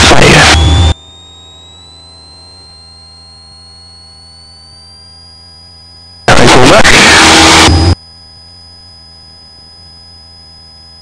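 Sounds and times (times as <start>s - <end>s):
loud intercom burst: 0.0s - 0.9s, 6.3s - 8.0s
intercom hum: 0.0s - 1.0s, 6.2s - 8.0s
thin high engine whine: 0.0s - 11.0s.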